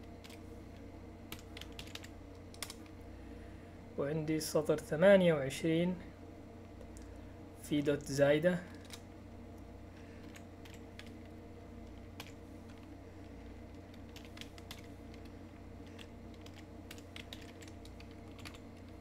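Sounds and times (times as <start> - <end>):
low steady hum: 0.0 - 19.0
typing on computer keyboard: 1.3 - 2.8, 10.2 - 11.2, 12.2 - 12.8, 13.8 - 19.0.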